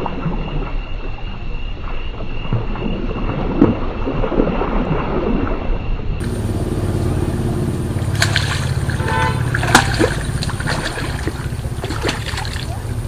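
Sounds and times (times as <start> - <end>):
fish thrashing and splashing: 6.2 - 13.0
sharp splashes: 6.2 - 13.0
steady low rumble: 6.2 - 13.0.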